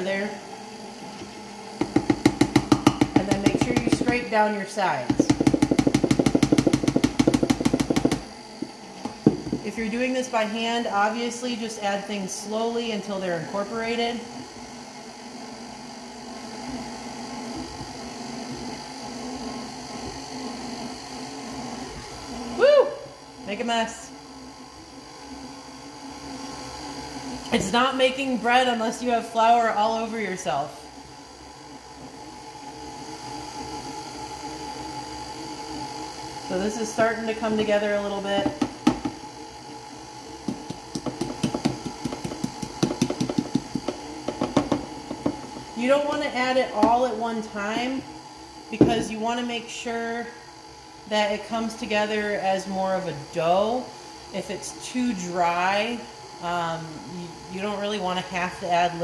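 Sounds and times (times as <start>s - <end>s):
stand mixer motor humming: 0.0s - 59.0s
dough hook knocking and clattering: 1.8s - 4.2s, 5.1s - 9.7s, 40.4s - 45.7s.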